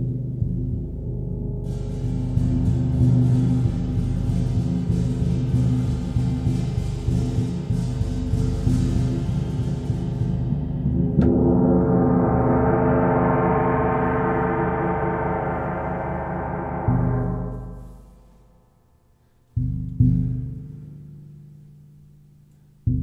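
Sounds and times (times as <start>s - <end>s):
gong ringing: 11.2s - 17.8s.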